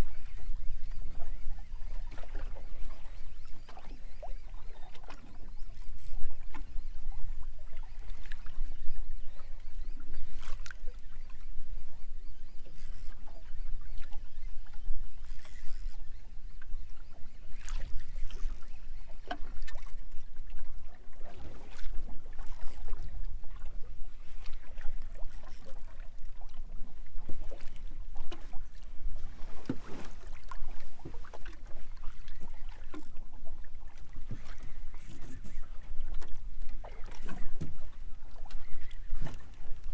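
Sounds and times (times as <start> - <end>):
water splashing against boat hull: 17.5 - 39.9.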